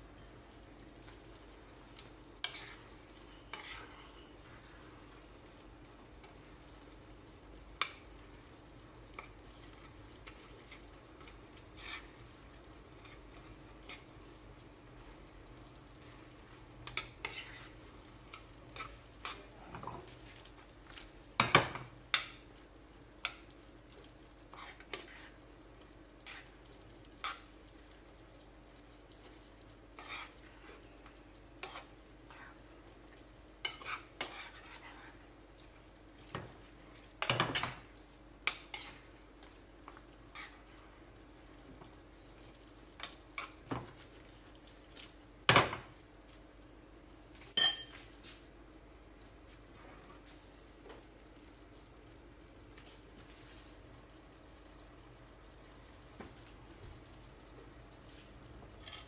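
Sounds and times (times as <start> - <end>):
faint frying: 0.0 - 59.0
utensil scraping frying pan: 2.4 - 4.3, 10.2 - 12.2, 13.0 - 14.2, 16.8 - 20.4, 24.5 - 25.4, 26.2 - 27.5, 29.9 - 30.8, 33.6 - 35.2, 37.2 - 39.1, 40.3 - 40.8.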